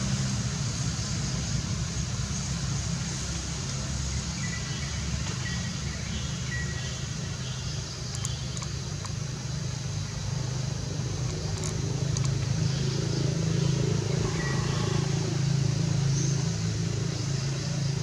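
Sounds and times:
faint ticks: 8.0 - 9.2, 11.2 - 12.5.

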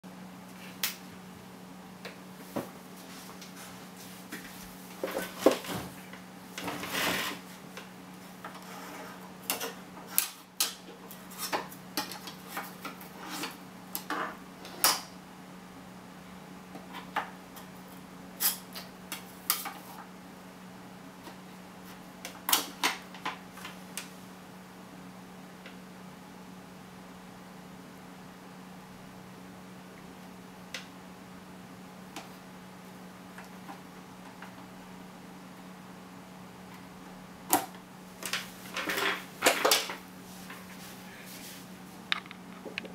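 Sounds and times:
faint steady hum: 0.0 - 42.9.

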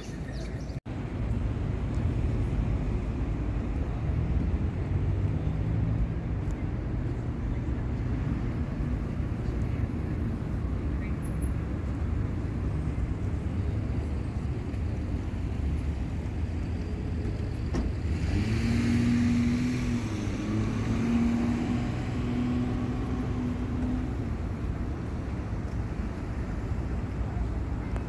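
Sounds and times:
car driving past: 17.9 - 24.2.

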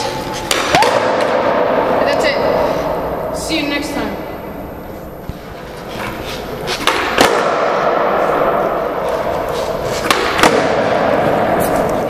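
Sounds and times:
skateboard wheels rolling on concrete: 5.2 - 12.0.

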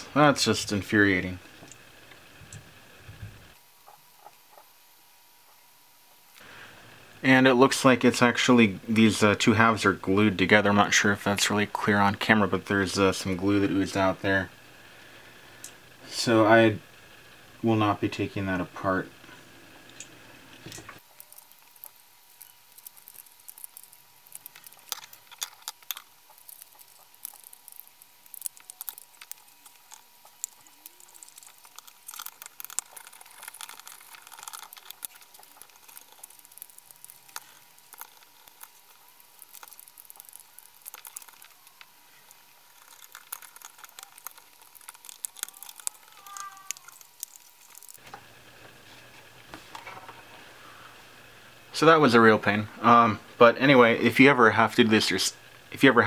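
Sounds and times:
plastic pieces clicking and scraping: 20.7 - 48.0.

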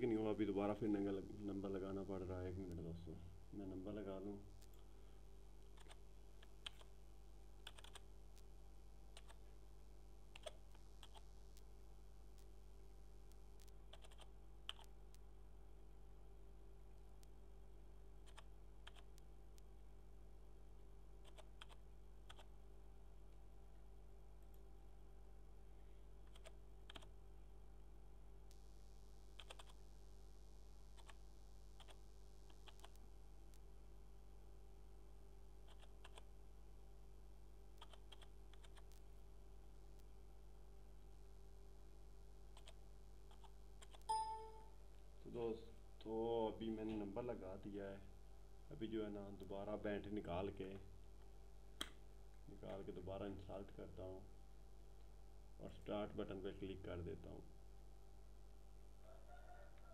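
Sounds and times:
steady low hum: 0.0 - 59.9
computer keyboard keystrokes: 7.6 - 8.0, 10.3 - 11.2, 13.9 - 14.8, 21.2 - 22.5, 26.3 - 27.1, 29.4 - 29.8, 35.7 - 36.2, 37.8 - 38.9.

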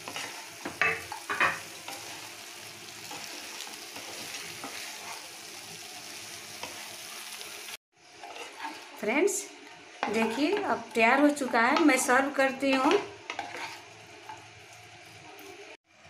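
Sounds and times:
spatula scraping a pan: 0.0 - 2.4, 3.0 - 5.6, 8.0 - 9.0, 10.0 - 15.2
sauce sizzling in a pan: 0.0 - 16.0.

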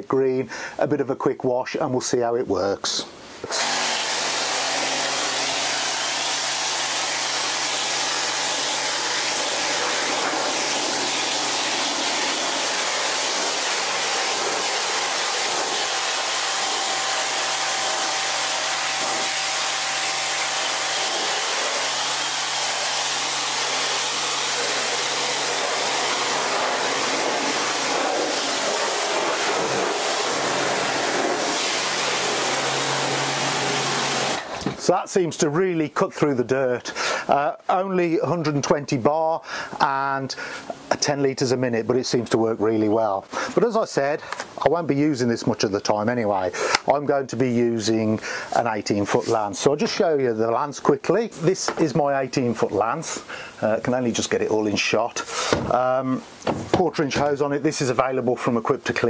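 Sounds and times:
pressure washer motor humming: 3.4 - 34.7
high-pressure jet hissing on paving: 3.5 - 34.5, 55.3 - 56.2.

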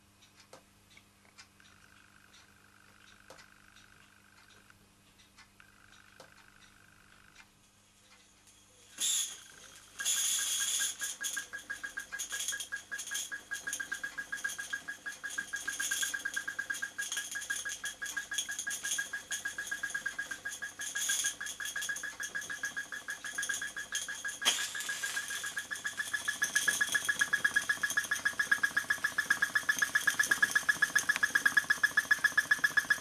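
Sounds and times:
light mechanism ticks: 0.2 - 33.0
steam hiss: 9.0 - 10.9
steam engine exhaust puffs: 9.0 - 11.3.

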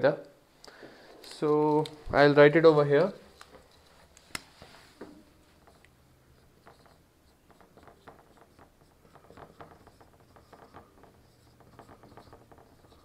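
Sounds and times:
marker writing on whiteboard: 5.0 - 13.0.

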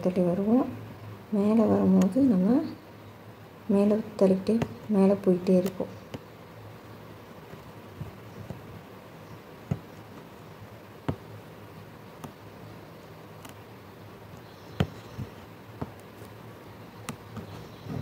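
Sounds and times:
low steady hum: 0.0 - 18.0
needle clicking through cloth: 4.5 - 6.3, 13.2 - 16.4.

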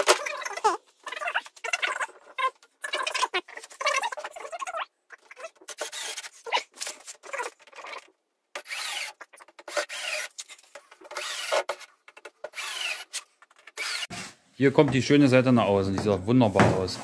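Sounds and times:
screws grinding into wood: 5.3 - 6.6, 7.2 - 14.1
cordless drill driving screws: 8.6 - 10.5, 11.1 - 11.8, 12.5 - 13.2, 13.8 - 14.1.

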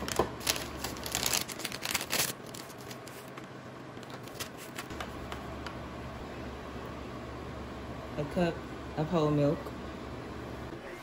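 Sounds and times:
paper packet rustling: 0.0 - 5.1.

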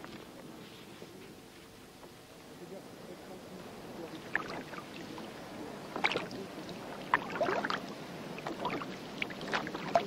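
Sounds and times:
water splashing and sloshing: 4.2 - 10.0
sharp water splashes: 7.0 - 10.0.

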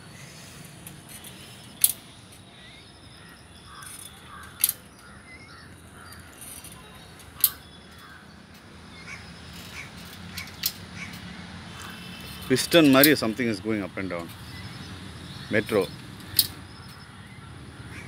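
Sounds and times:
crows cawing: 2.6 - 8.4, 9.0 - 12.3, 17.1 - 18.0.

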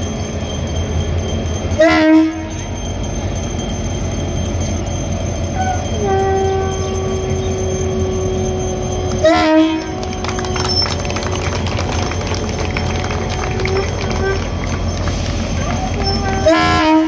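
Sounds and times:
locomotive air horn: 1.8 - 2.8, 5.6 - 11.1, 12.9 - 17.0.

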